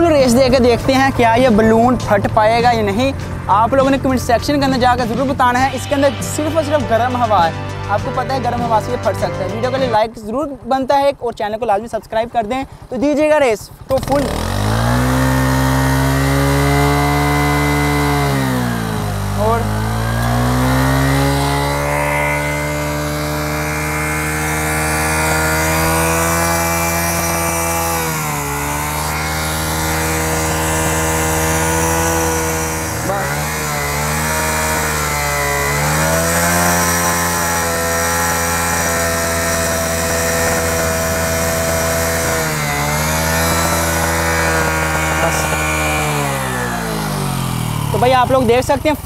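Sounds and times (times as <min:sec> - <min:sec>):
motorcycle engine at high revs: 0:00.0 - 0:49.0.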